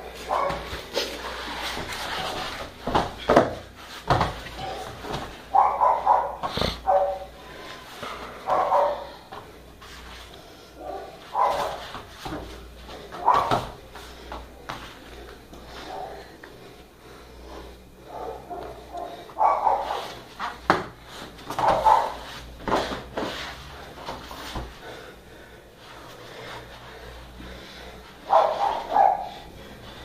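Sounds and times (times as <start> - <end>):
dog barking: 0.3 - 0.7, 5.5 - 7.3, 8.4 - 9.2, 10.8 - 11.8, 13.2 - 13.6, 18.1 - 20.2, 21.6 - 22.2, 28.3 - 29.4
thumps on foam mats: 2.8 - 5.4, 20.6 - 23.4.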